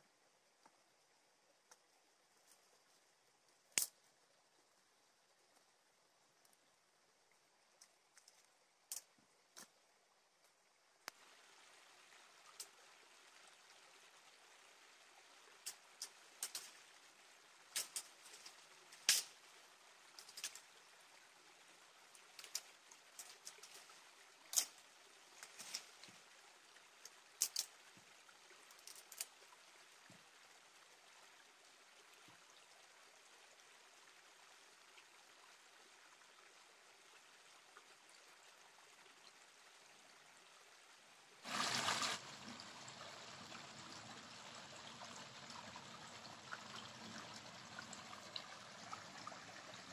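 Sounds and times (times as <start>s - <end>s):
twig fire crackling: 17.7s - 19.4s.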